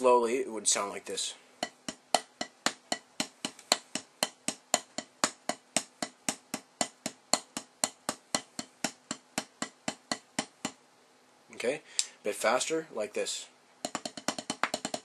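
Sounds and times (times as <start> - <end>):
drumsticks tapping practice pad: 1.6 - 10.8, 13.8 - 15.0.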